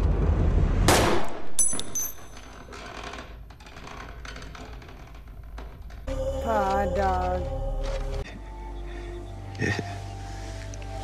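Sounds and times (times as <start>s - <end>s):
low rumble: 0.0s - 1.6s
pistol shot: 0.9s - 1.6s.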